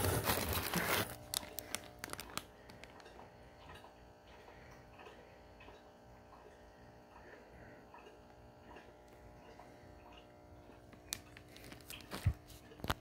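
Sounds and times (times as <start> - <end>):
plastic bag crinkling: 0.0 - 3.1, 11.4 - 12.4.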